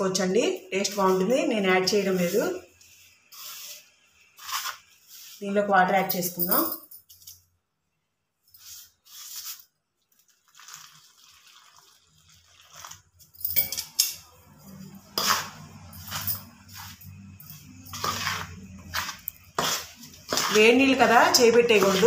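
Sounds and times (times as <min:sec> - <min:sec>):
hot water pouring into bowl: 0:10.2 - 0:13.2
ladle scraping and clinking bowl: 0:10.6 - 0:22.0.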